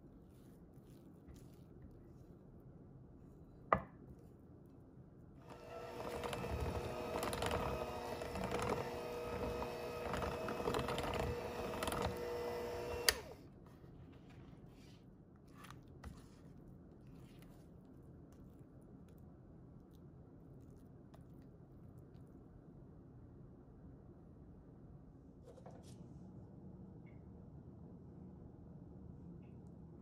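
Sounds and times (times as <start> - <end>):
electric hand mixer running: 5.4 - 13.4.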